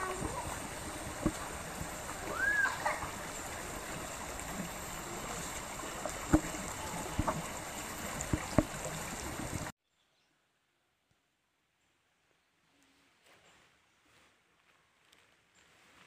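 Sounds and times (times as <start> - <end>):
stream water flowing: 0.0 - 9.7.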